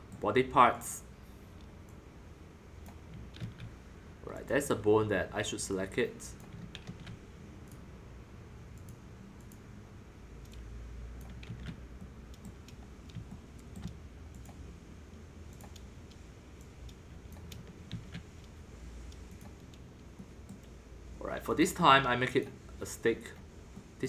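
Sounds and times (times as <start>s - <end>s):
low steady hum: 0.0s - 24.0s
mouse and keyboard clicks: 2.8s - 3.8s, 6.4s - 7.8s, 11.2s - 14.6s, 15.5s - 20.8s.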